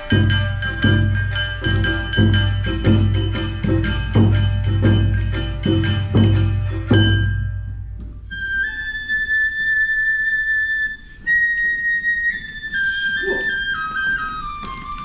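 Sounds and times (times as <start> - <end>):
bamboo flute playing: 8.2 - 15.0.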